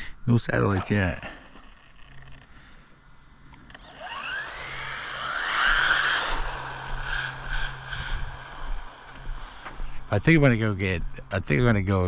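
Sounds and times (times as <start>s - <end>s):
toy truck electric motor whining: 1.5s - 2.6s, 3.4s - 9.7s.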